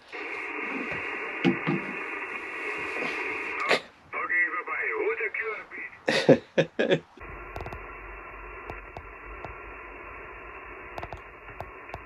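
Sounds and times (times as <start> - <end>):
radio receiver hiss: 0.0 - 6.2, 6.8 - 12.0
faint clicks: 8.6 - 9.6, 10.9 - 12.0.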